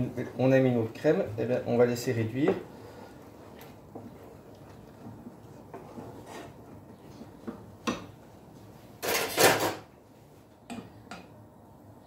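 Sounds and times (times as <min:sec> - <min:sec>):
wooden spatula knocking in pan: 0:07.2 - 0:08.2.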